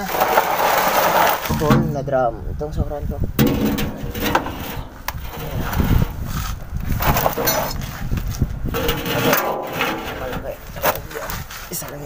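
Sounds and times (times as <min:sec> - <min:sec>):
metal knocks: 0:03.4 - 0:06.2, 0:08.6 - 0:11.0
metal drum scraping across floor: 0:03.4 - 0:08.0, 0:08.6 - 0:11.0.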